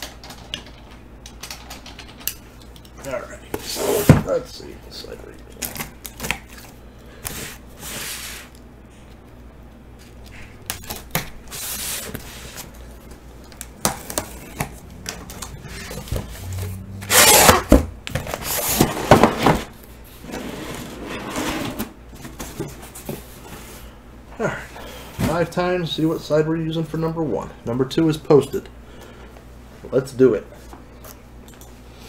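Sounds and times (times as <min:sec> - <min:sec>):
tape and cardboard tearing: 0:13.9 - 0:19.6
box cutter slitting tape: 0:17.0 - 0:18.9.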